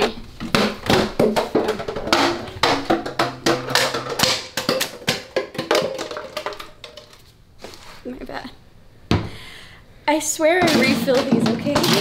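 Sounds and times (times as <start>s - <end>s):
plastic bottles and cups clattering: 0.0s - 7.4s, 10.6s - 12.0s.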